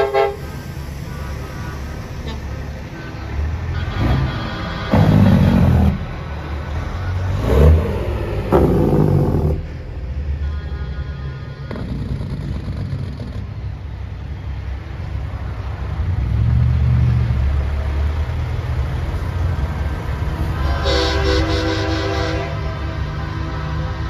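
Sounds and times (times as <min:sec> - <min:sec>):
air horn blast: 0:00.0 - 0:00.6, 0:03.7 - 0:06.1, 0:10.4 - 0:12.1, 0:20.5 - 0:24.0
trucks rumbling past: 0:00.0 - 0:24.0.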